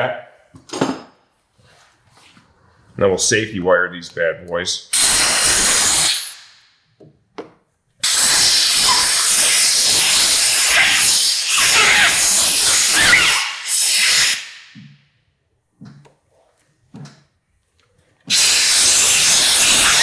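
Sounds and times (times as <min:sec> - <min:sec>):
compressed air hissing from blow gun: 0:04.9 - 0:06.4, 0:08.0 - 0:14.5, 0:18.3 - 0:20.0
air squealing under rubber grip: 0:08.0 - 0:14.4, 0:18.3 - 0:20.0.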